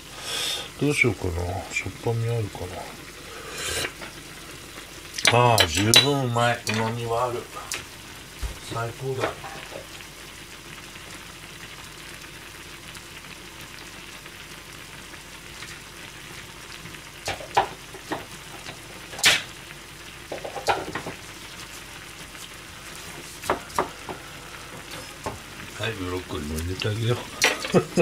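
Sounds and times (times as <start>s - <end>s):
broth simmering in saucepan: 0.0s - 28.0s.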